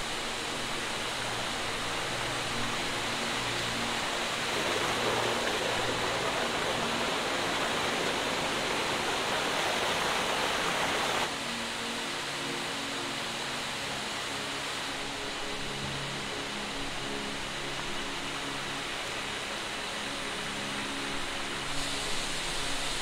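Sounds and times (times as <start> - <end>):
stream rushing over rocks: 0.0 - 23.0.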